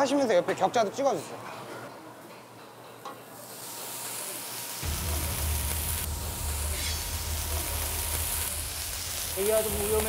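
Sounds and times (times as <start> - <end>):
water hissing on hot oil: 3.4 - 10.0
low rumble: 4.8 - 10.0.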